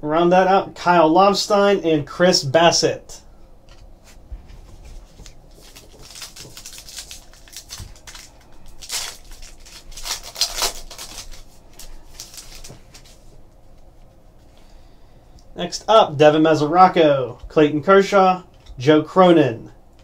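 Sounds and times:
cards being handled: 3.7 - 14.6
wrapper tearing and crinkling: 5.2 - 13.2.

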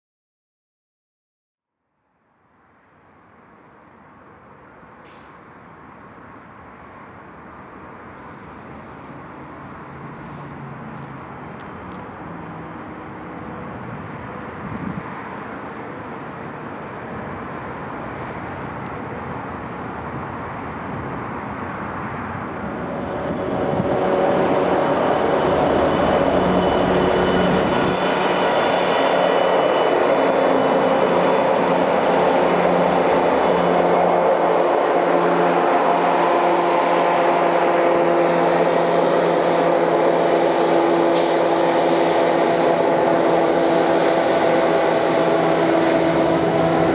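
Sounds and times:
diesel locomotive engine: 2.8 - 46.9
train rolling rumble: 11.7 - 46.9
high squealing tones: 22.5 - 46.9.

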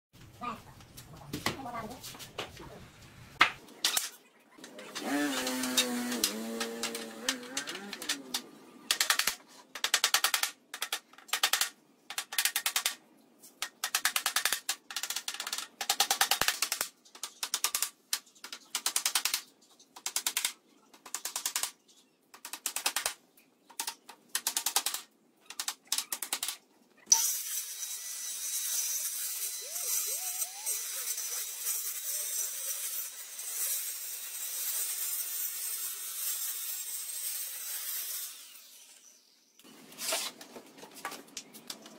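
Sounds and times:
circular saw cutting: 4.7 - 8.5, 27.1 - 39.4.

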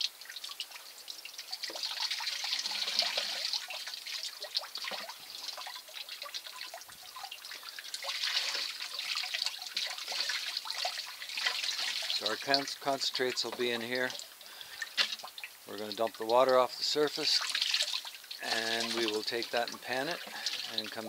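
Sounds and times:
water splashing into plastic tub: 0.0 - 21.0.

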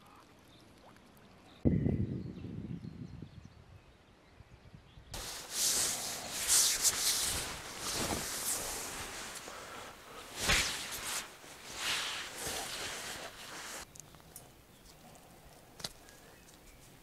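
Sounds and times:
fabric rustling and swishing: 5.2 - 13.9.

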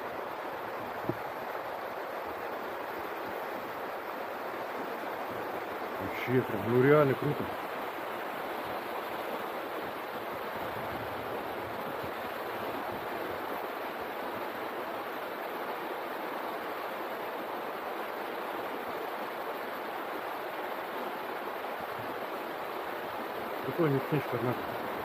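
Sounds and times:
river rushing over rocks: 0.0 - 25.0.

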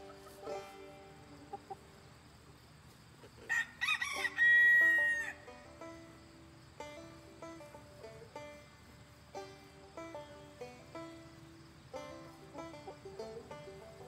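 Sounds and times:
plucked string background music: 0.0 - 1.7, 5.0 - 14.0
rooster crowing: 3.5 - 5.6.

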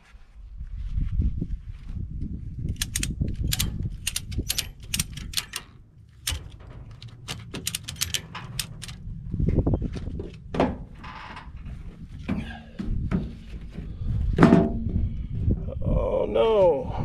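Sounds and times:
ratchet strap clicking: 2.7 - 9.0.

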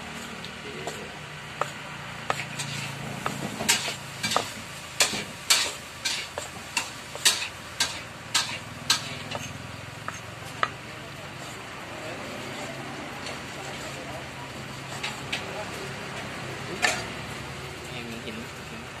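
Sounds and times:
cleaver chopping meat on wood: 3.2 - 5.8, 6.4 - 10.8.

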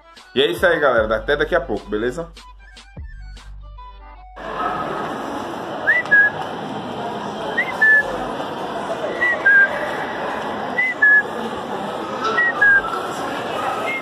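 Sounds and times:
shopping mall hubbub: 0.0 - 3.6, 4.2 - 14.0
two-note whistle: 5.9 - 6.4, 12.2 - 13.0.

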